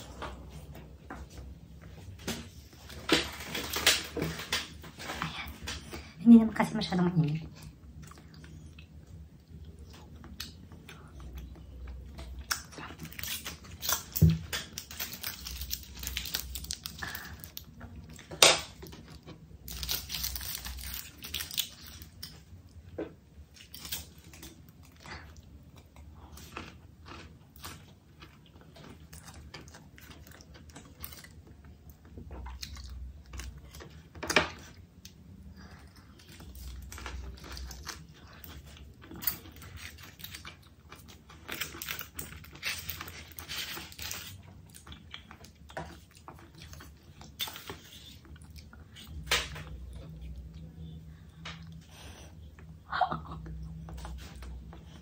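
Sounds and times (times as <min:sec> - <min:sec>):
close chewing with wet clicks: 0:07.6 - 0:15.3, 0:34.7 - 0:49.2.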